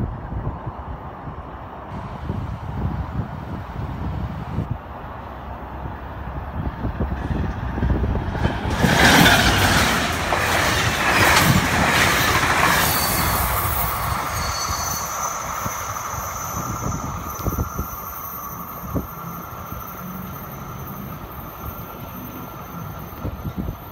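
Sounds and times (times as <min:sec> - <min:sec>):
train passing wheel and rail noise: 0:00.0 - 0:23.9
steady high tone: 0:12.8 - 0:23.9.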